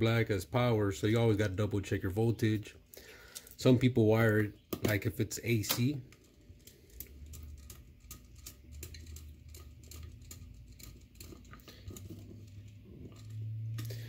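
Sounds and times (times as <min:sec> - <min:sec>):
screwdriver clicking and scraping: 0:05.7 - 0:14.0.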